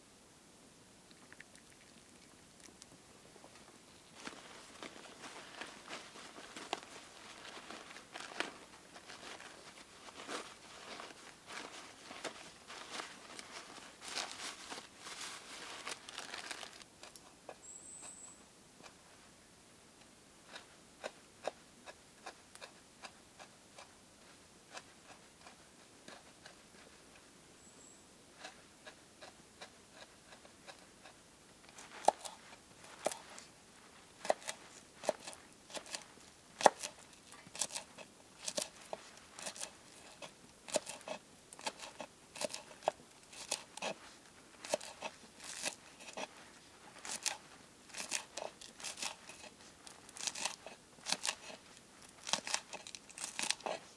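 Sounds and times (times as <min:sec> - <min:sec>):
food crunching being cut: 0:31.7 - 0:33.2, 0:34.2 - 0:44.0, 0:44.6 - 0:46.3, 0:47.0 - 0:51.6, 0:52.2 - 0:53.9.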